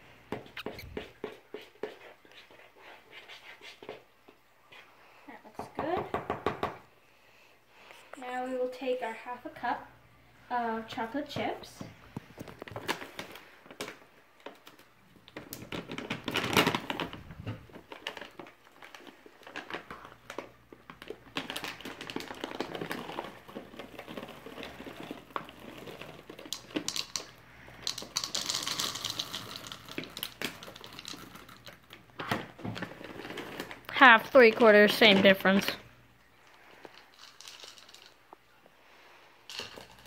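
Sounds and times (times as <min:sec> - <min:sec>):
plastic bag crinkling: 0:12.3 - 0:35.8, 0:36.5 - 0:38.4, 0:39.5 - 0:40.0
chips dropping into plastic cup: 0:17.8 - 0:33.8, 0:36.8 - 0:38.4, 0:39.5 - 0:40.0.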